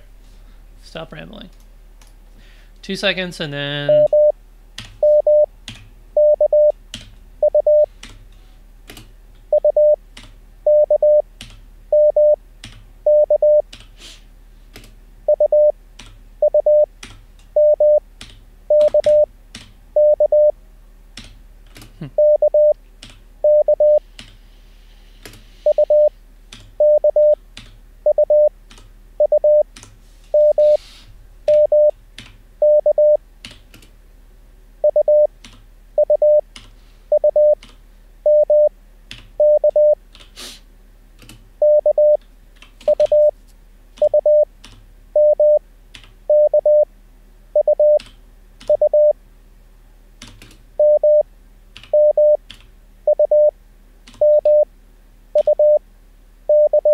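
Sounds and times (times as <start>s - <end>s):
morse code tone: 3.9s - 4.4s, 5.0s - 5.5s, 6.2s - 6.7s, 7.4s - 7.9s, 9.5s - 10.0s, 10.7s - 11.2s, 11.9s - 12.4s, 13.1s - 13.6s, 15.3s - 15.7s, 16.4s - 16.9s, 17.6s - 18.0s, 18.7s - 19.3s, 20.0s - 20.5s, 22.2s - 22.8s, 23.4s - 24.0s, 25.6s - 26.1s, 26.8s - 27.4s, 28.1s - 28.5s, 29.2s - 29.6s, 30.3s - 30.8s, 31.5s - 31.9s, 32.6s - 33.2s, 34.8s - 35.3s, 36.0s - 36.4s, 37.1s - 37.6s, 38.2s - 38.7s, 39.4s - 40.0s, 41.6s - 42.2s, 42.9s - 43.3s, 44.0s - 44.5s, 45.2s - 45.6s, 46.3s - 46.9s, 47.6s - 48.0s, 48.7s - 49.2s, 50.8s - 51.2s, 51.9s - 52.4s, 53.1s - 53.5s, 54.2s - 54.7s, 55.4s - 55.8s, 56.5s - 56.9s
keyboard keystrokes clicking: 18.2s - 19.8s.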